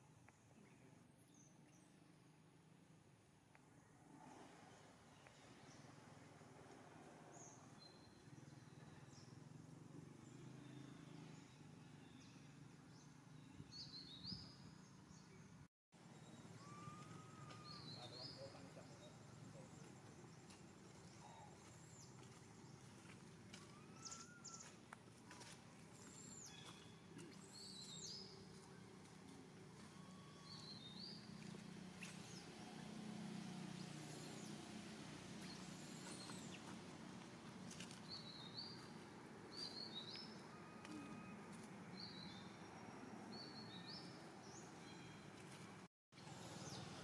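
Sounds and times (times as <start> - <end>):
small birds chirping and whistling: 16.2 - 22.3, 23.5 - 24.8, 25.4 - 28.7, 29.7 - 32.5, 33.8 - 34.6, 35.4 - 36.7.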